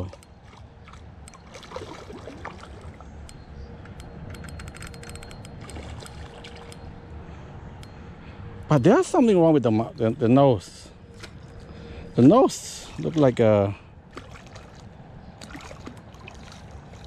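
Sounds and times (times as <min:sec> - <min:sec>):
trickling water: 0:00.0 - 0:03.5, 0:04.9 - 0:06.9, 0:11.1 - 0:17.0
faint steady hum: 0:00.0 - 0:17.0.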